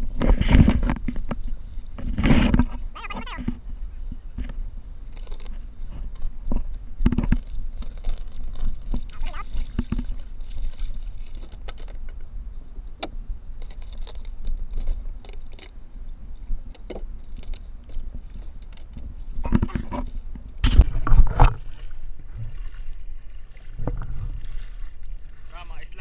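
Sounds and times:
steady low rumble: 19.1s - 26.0s.

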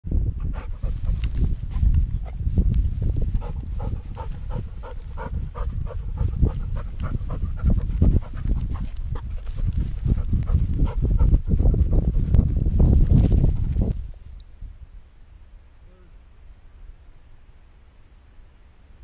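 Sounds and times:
camera jostling rumble and thumps: 0.2s - 14.5s
dog panting quickly: 0.3s - 12.6s.

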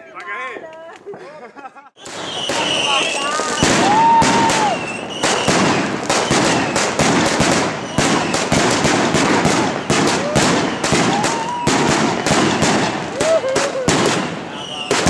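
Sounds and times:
firework bangs and pops: 2.0s - 15.0s.

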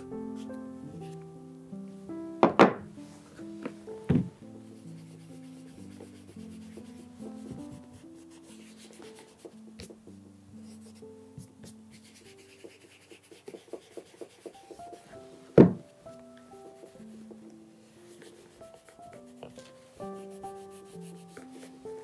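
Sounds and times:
quiet melodic background music: 0.0s - 22.0s.

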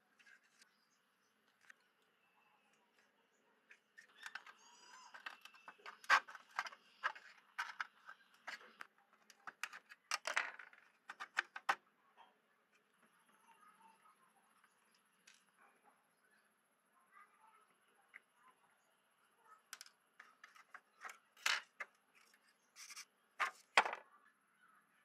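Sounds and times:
tweezers working at grille: 1.7s - 9.7s.

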